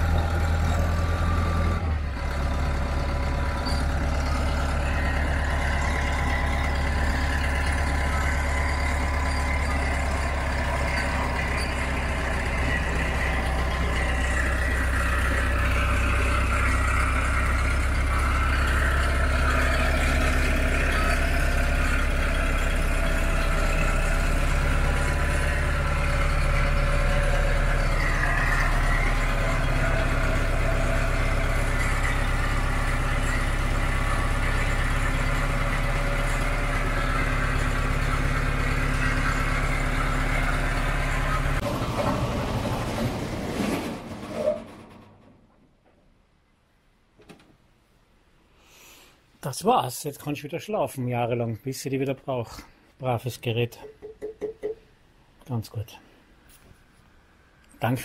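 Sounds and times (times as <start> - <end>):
crawler loader engine running: 0.0 - 46.3.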